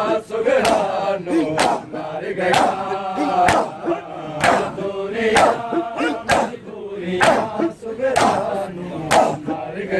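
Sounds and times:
men chanting in unison: 0:00.0 - 0:09.9
hands slapping chests: 0:00.6 - 0:01.9, 0:02.5 - 0:03.8, 0:04.4 - 0:06.6, 0:07.2 - 0:08.5, 0:09.1 - 0:09.4.

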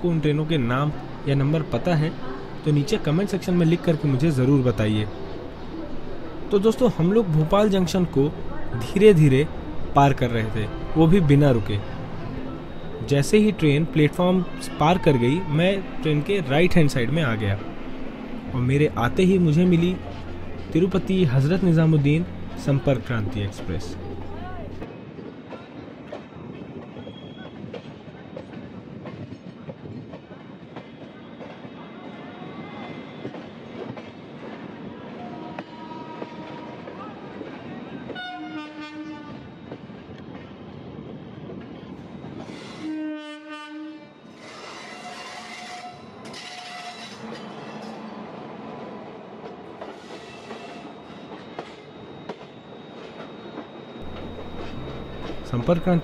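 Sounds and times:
passing train rush and clatter: 0:00.0 - 0:56.0
train wheels rumbling on rails: 0:49.3 - 0:56.0.

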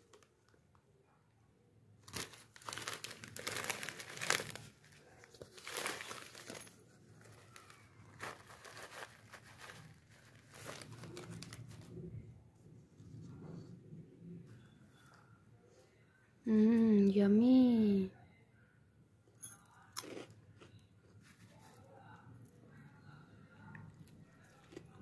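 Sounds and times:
snack packet crinkling: 0:02.0 - 0:11.9.

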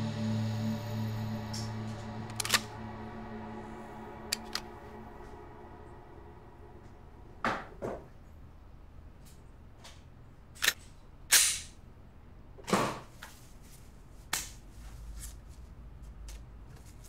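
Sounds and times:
background music: 0:00.0 - 0:07.8.

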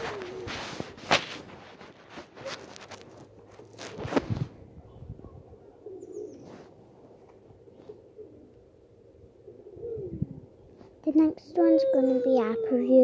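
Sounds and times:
dove cooing: 0:00.0 - 0:01.0, 0:04.9 - 0:06.8, 0:07.4 - 0:10.7, 0:11.6 - 0:13.0.

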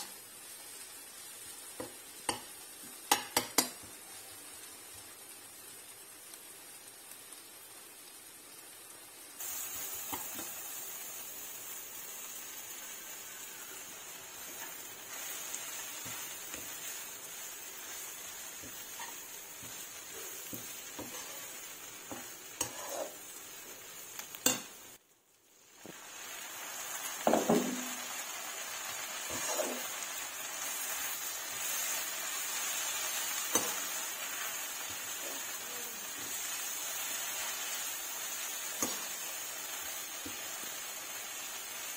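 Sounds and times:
food sizzling in a wok: 0:00.0 - 0:41.9
metal spatula scraping a pan: 0:17.8 - 0:23.4, 0:29.1 - 0:30.0.

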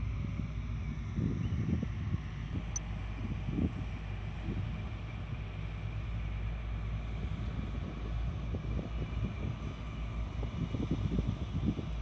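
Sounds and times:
diesel engine running at low revs: 0:00.0 - 0:12.0
wind buffeting microphone: 0:07.1 - 0:12.0.

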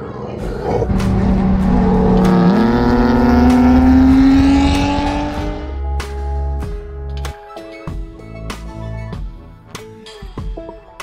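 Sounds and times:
low road rumble: 0:00.7 - 0:06.7
car engine revving: 0:00.8 - 0:06.1.

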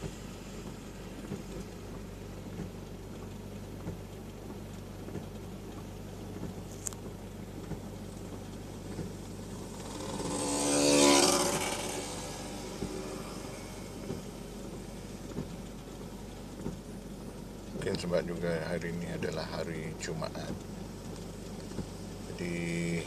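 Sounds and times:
car engine humming: 0:00.0 - 0:23.0
vehicle passing on wet road: 0:08.3 - 0:17.0.

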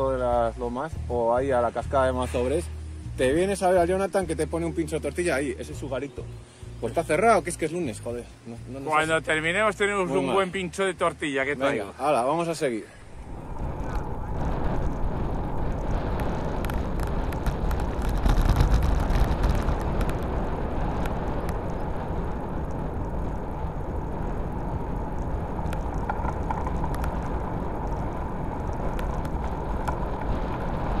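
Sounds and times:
bike tyre noise on asphalt: 0:11.7 - 0:31.0
wind rushing over microphone: 0:12.9 - 0:31.0
small clicks: 0:25.1 - 0:31.0.

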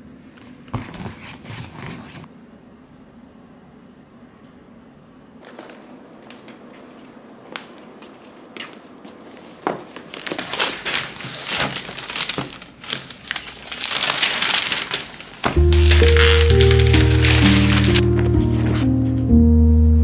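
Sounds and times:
gift paper rustling and crinkling: 0:09.9 - 0:19.0.

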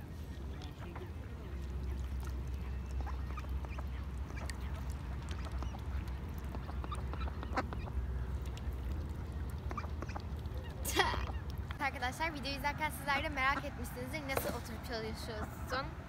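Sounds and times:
ducks quacking: 0:00.0 - 0:11.8.

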